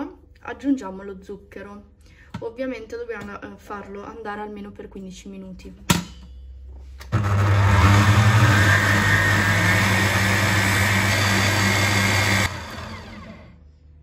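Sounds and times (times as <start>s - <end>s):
stand mixer motor humming: 7.1s - 13.6s.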